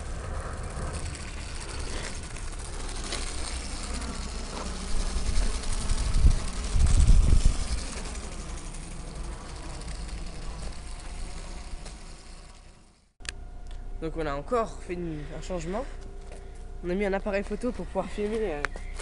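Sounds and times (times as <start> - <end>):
small electric motor buzzing: 0.0 - 13.2
low rumble: 0.0 - 13.6.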